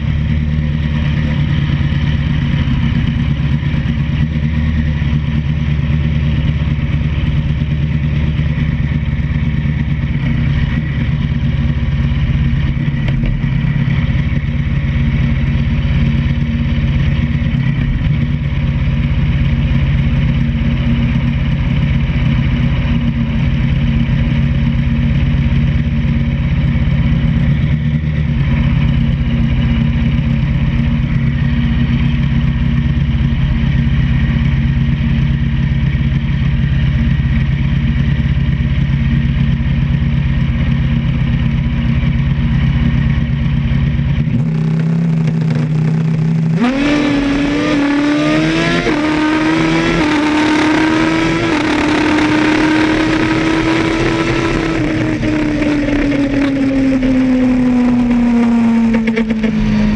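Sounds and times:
vehicle engine idling: 0.0s - 59.9s
engine pulling away through gears: 44.4s - 59.9s.

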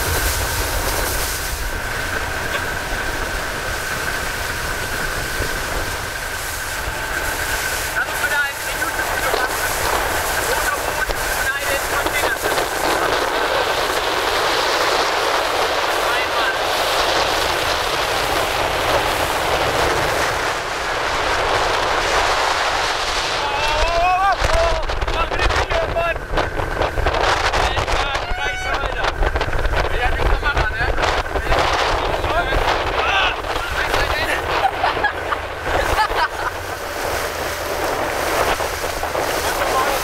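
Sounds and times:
boat engine whine: 0.0s - 40.0s
rushing water: 0.0s - 40.0s
wind on microphone: 0.0s - 40.0s.

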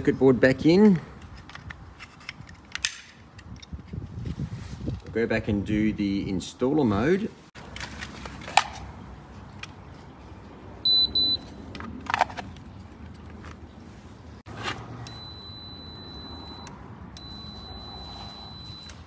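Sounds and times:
handling clicks and knocks: 11.6s - 13.8s.

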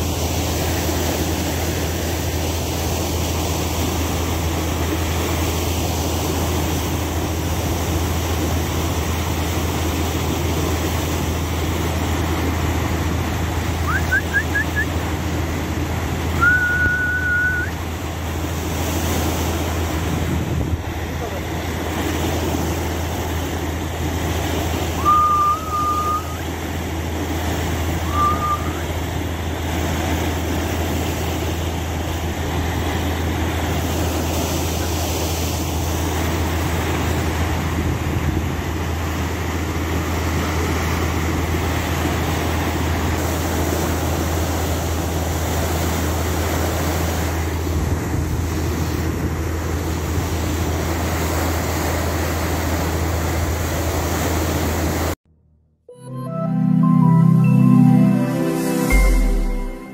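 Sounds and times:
bow wave rushing and splashing: 0.0s - 55.2s
boat engine running with low hum: 0.0s - 55.9s
short high tones: 25.0s - 26.5s, 55.4s - 59.9s.

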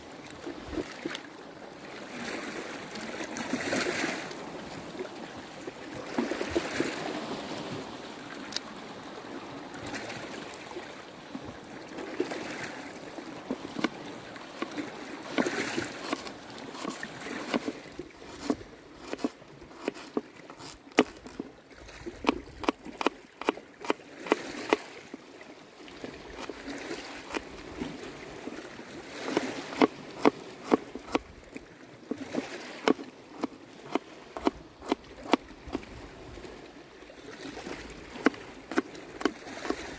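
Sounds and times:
running water: 0.0s - 39.9s
knife chopping on wooden bowl: 15.3s - 21.4s, 29.3s - 31.2s, 32.8s - 35.4s.

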